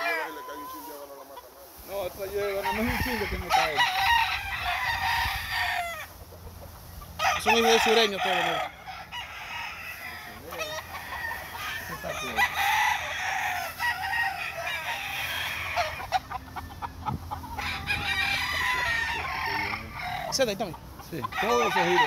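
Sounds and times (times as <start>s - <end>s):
chickens clucking: 0.0s - 22.0s
roosters crowing: 0.0s - 22.0s.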